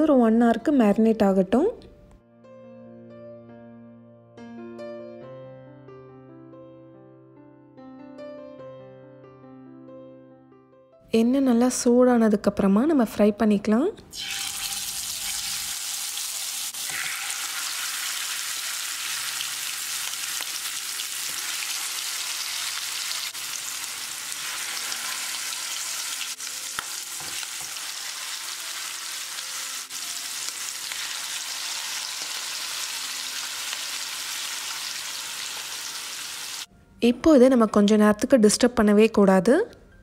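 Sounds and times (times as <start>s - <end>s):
fish sizzling in hot oil: 14.2s - 36.7s.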